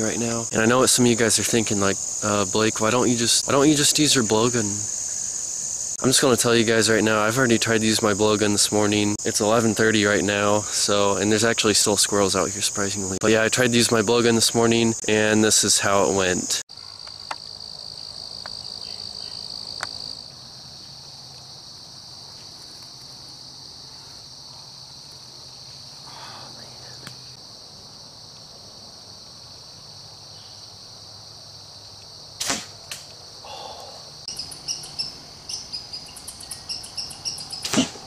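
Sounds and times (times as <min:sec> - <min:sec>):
insects droning: 0:00.0 - 0:38.0
sharp crack: 0:32.4 - 0:33.2, 0:37.6 - 0:38.0.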